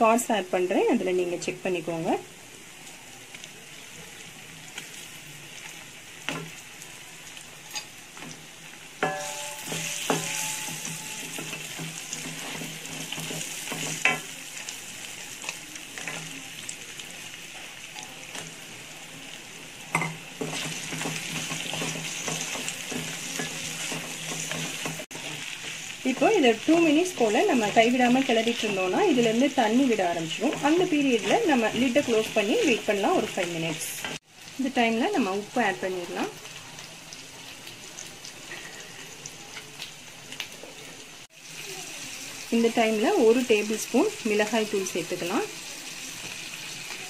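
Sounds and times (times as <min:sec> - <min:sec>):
crab sizzling in hot oil: 0:00.0 - 0:47.0
utensils knocking and clinking on pan: 0:09.0 - 0:14.3, 0:19.9 - 0:26.4.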